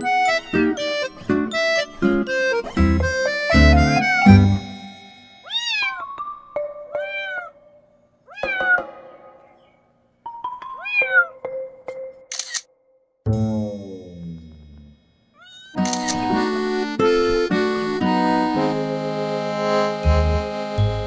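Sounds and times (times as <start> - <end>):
background music: 0.0 - 12.4, 15.8 - 21.0
kitten mewing: 7.0 - 7.6, 10.8 - 11.4.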